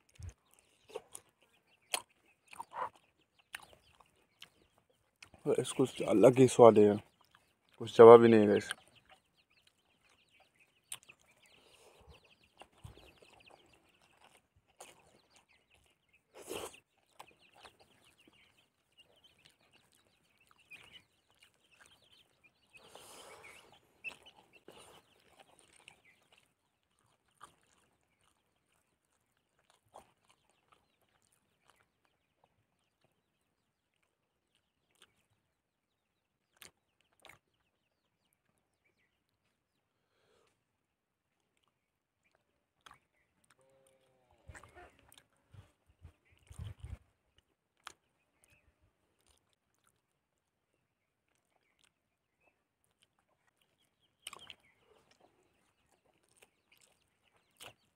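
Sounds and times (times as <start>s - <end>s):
chewing: 0.0s - 57.9s
soft clicks of eating: 0.0s - 57.9s
chickens clucking: 0.8s - 4.8s.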